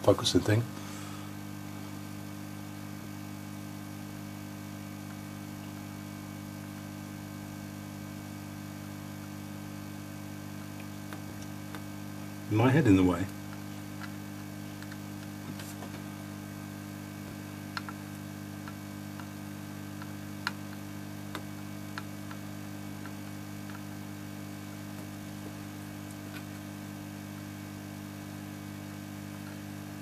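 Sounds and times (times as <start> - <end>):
electrical mains hum: 0.0 - 30.0
soldering iron light clicks: 17.3 - 23.9.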